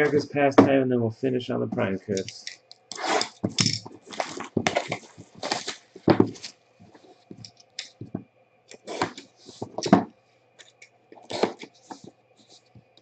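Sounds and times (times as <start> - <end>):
plastic wrap and cardboard rustling: 2.9 - 8.1, 8.7 - 12.7.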